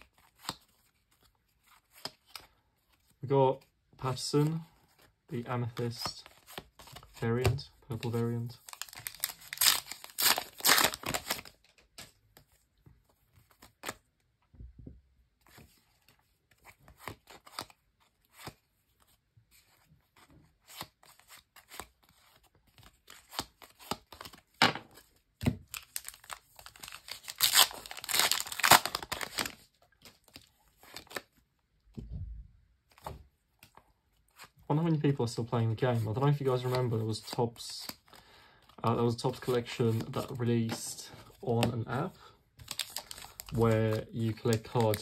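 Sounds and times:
cards flicking and rustling: 0:04.2 - 0:14.1, 0:15.4 - 0:32.1, 0:42.6 - 0:45.0
foil pack tearing and crinkling: 0:08.6 - 0:11.6, 0:25.7 - 0:29.6, 0:42.6 - 0:45.0.

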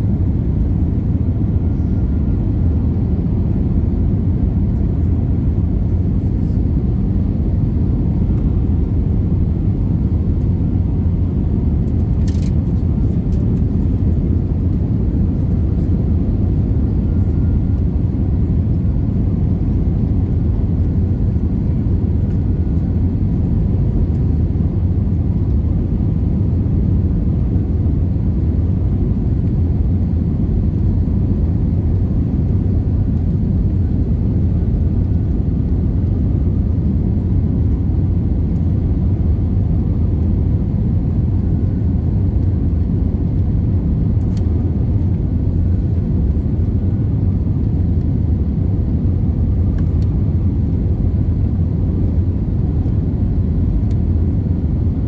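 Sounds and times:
airplane cabin rumble: 0:00.0 - 0:55.0
faint steady whine: 0:00.0 - 0:55.0.

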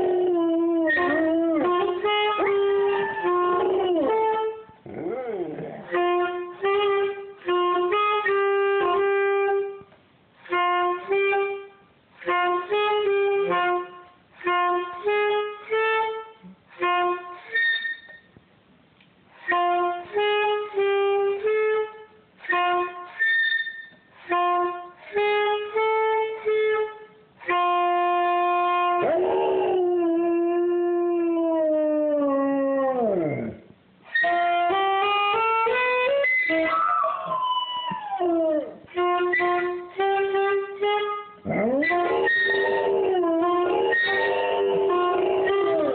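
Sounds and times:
dog howling: 0:00.0 - 0:06.0, 0:29.0 - 0:33.6, 0:36.6 - 0:38.8, 0:41.5 - 0:45.9
high dog whines: 0:00.0 - 0:06.3, 0:29.0 - 0:33.7, 0:36.3 - 0:39.8, 0:41.4 - 0:45.9
saxophone playing held notes: 0:00.0 - 0:17.8, 0:19.3 - 0:23.4, 0:24.2 - 0:30.5, 0:33.0 - 0:45.9.

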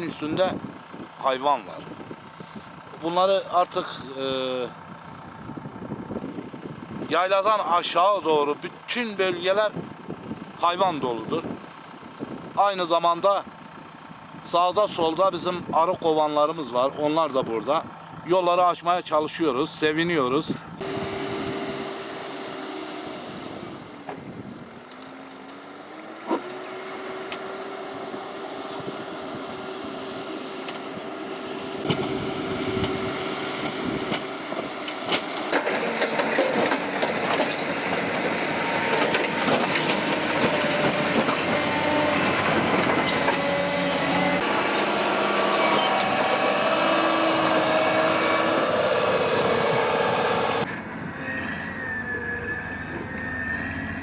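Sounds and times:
diesel engine running: 0:00.0 - 0:54.0
metal clanks and rattles: 0:34.1 - 0:43.6.

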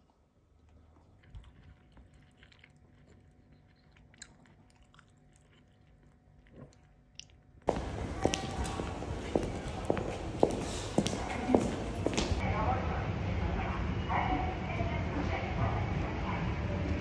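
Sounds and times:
soft chewing and biting: 0:00.4 - 0:07.7.

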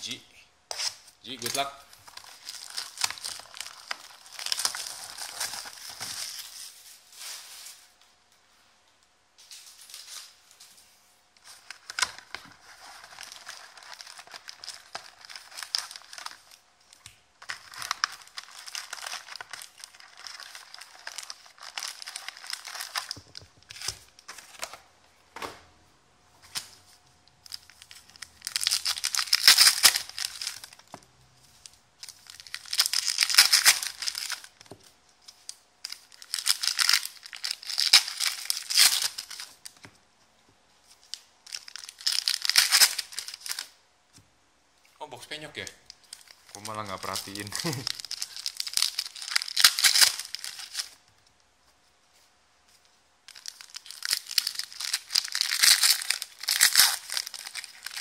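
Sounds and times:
card packs rustling and crinkling: 0:01.3 - 0:08.0, 0:09.4 - 0:24.9, 0:26.4 - 0:39.9, 0:40.8 - 0:43.7, 0:45.5 - 0:51.0, 0:52.1 - 0:58.0
wrapper tearing open: 0:01.4 - 0:07.4, 0:11.4 - 0:24.7, 0:27.4 - 0:30.9, 0:31.6 - 0:34.6, 0:35.3 - 0:39.8, 0:41.0 - 0:43.8, 0:45.9 - 0:51.0, 0:53.3 - 0:58.0.

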